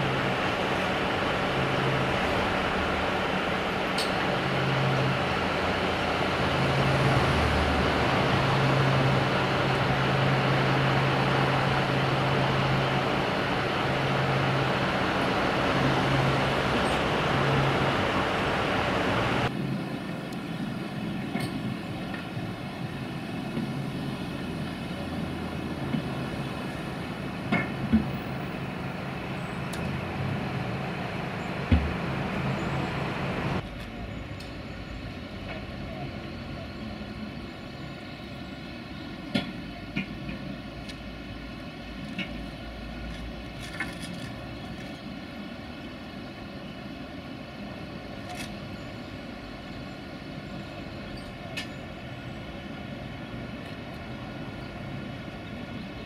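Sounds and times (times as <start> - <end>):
heavy vehicle machinery humming: 0.0 - 56.0.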